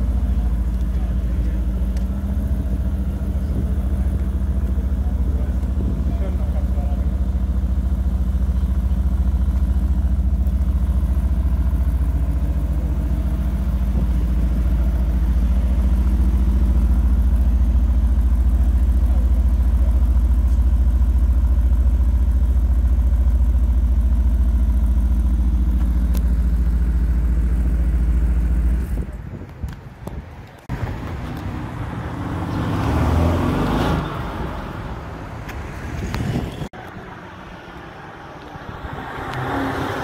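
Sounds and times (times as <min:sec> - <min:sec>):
car engine idling: 0:00.0 - 0:31.9.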